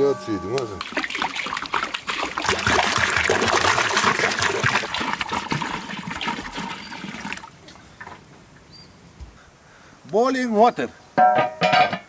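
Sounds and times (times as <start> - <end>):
water pouring into metal pot: 0.7 - 7.6.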